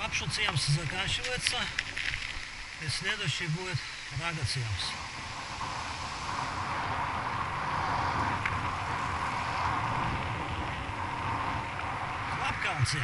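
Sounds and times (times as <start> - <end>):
bike tyres rolling on asphalt: 0.0 - 13.0
wind on microphone: 4.6 - 13.0.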